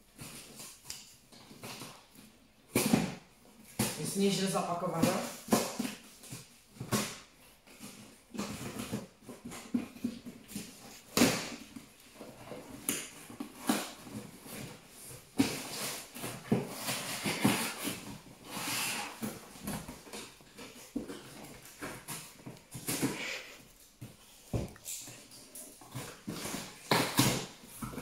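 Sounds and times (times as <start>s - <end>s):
packing tape ripped off box: 12.8s - 14.8s, 15.4s - 23.5s.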